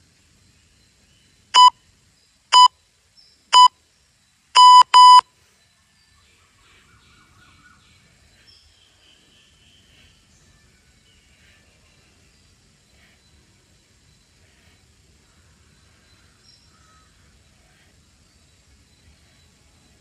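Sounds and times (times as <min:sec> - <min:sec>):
electronic timer beeps: 0:01.6 - 0:01.8, 0:02.5 - 0:02.8, 0:03.5 - 0:03.7, 0:04.6 - 0:05.2.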